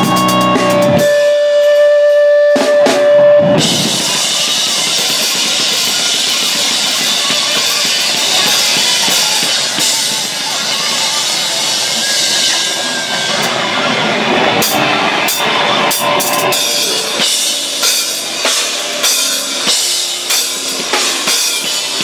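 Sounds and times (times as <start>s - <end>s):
cymbals: 0.0s - 13.6s, 14.5s - 22.0s
distorted electric guitar: 0.0s - 22.0s
drum hits: 2.8s - 12.7s.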